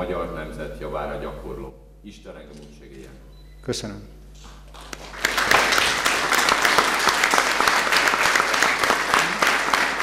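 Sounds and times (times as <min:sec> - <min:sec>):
audience clapping: 0:04.4 - 0:10.0.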